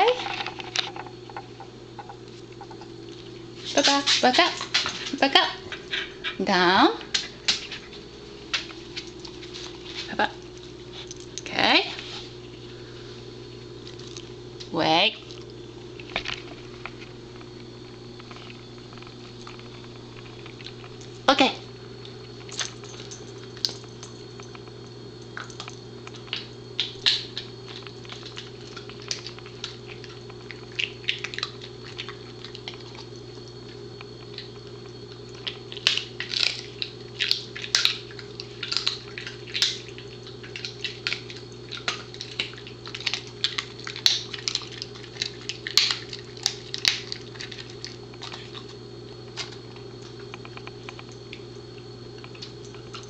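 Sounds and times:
dog chewing with crunching cracks: 0.0 - 12.8, 13.5 - 53.0
steady low hum: 0.0 - 53.0.

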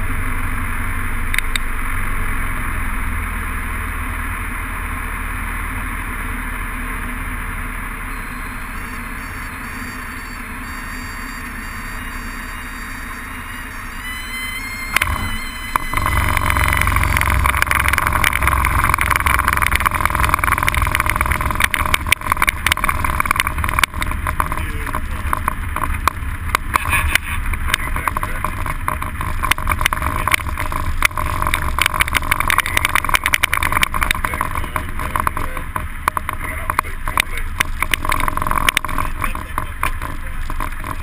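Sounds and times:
aircraft engine and propeller drone: 0.0 - 41.0
rattles and knocks: 14.9 - 41.0.

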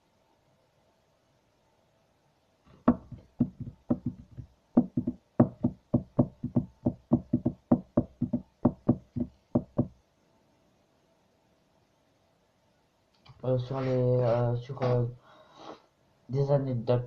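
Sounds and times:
rapid sharp knocking: 2.8 - 9.9.

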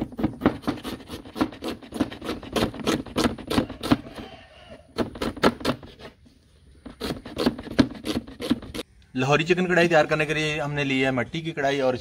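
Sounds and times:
knife chopping onion on wooden board: 0.0 - 6.0.

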